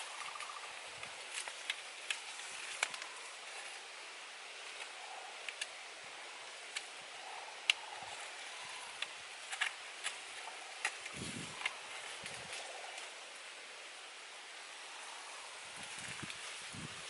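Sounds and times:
bamboo poles clicking and knocking: 0.0 - 3.7, 4.6 - 5.8, 8.9 - 13.2
steady outdoor hiss: 0.0 - 17.0.

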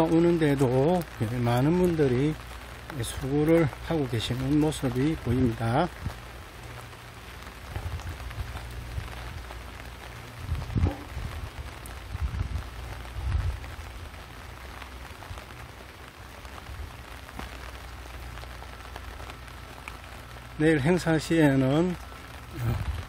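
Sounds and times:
steady rain falling: 0.0 - 23.0
dull low thumps: 10.4 - 13.8.

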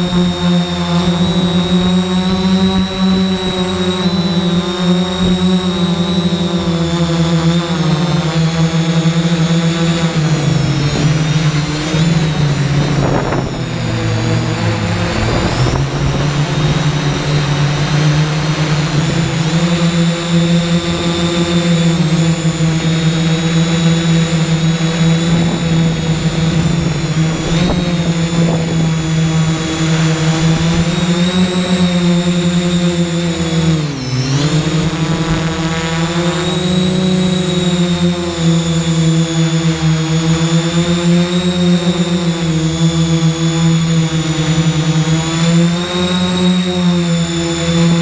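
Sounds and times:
drone propellers buzzing: 0.0 - 48.0.

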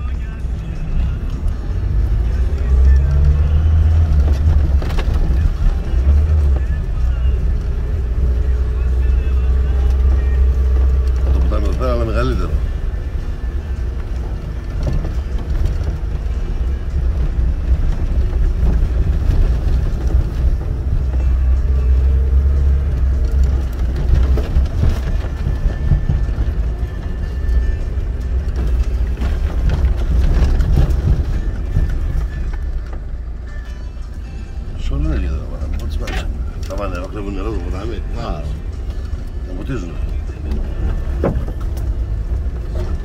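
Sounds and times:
vehicle engine rumble: 0.0 - 43.0.

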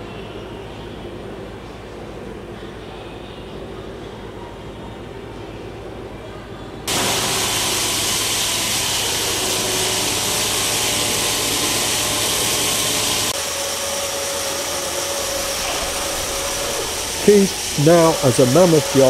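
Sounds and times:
workshop machine hissing and humming: 6.9 - 19.0.

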